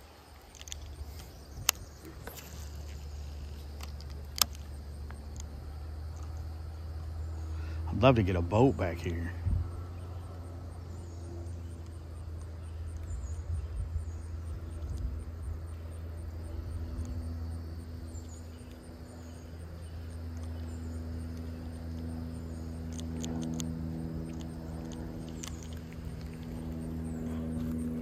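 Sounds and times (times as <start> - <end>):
small clicks: 0.0 - 6.4, 14.7 - 15.2, 20.1 - 28.0
faint insect chirping: 0.0 - 28.0
low motor-like hum: 0.0 - 28.0.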